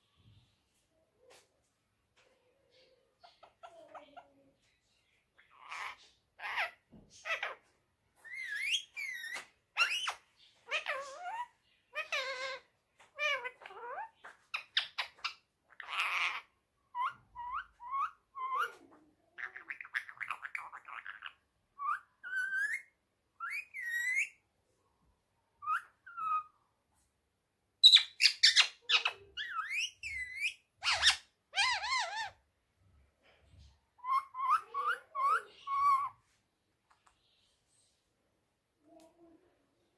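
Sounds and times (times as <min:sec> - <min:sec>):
parakeet calling: 0:05.4 - 0:07.6, 0:08.2 - 0:18.8, 0:19.4 - 0:24.4, 0:25.6 - 0:26.5, 0:27.8 - 0:32.4, 0:34.0 - 0:36.2.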